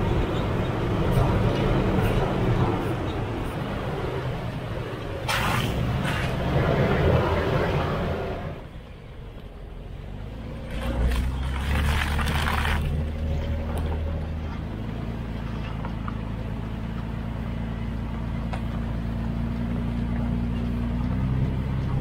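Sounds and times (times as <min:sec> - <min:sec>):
truck engine drone: 0:00.0 - 0:22.0
tyres crunching on gravel: 0:10.7 - 0:17.4.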